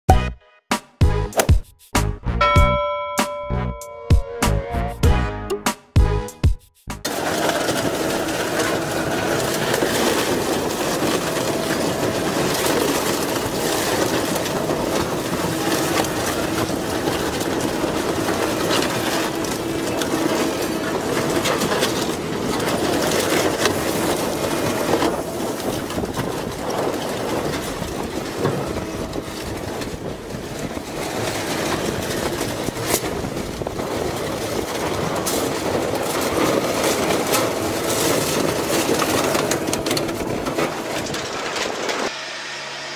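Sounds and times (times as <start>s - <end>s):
drone of shredder drive: 7.0s - 30.4s, 36.0s - 42.9s
shredder crunching and tearing metal: 7.0s - 42.9s.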